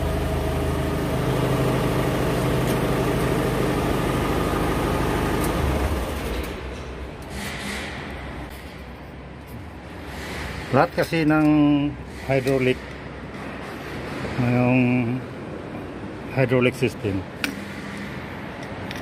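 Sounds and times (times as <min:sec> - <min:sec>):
vehicle engine idling: 0:00.0 - 0:06.3.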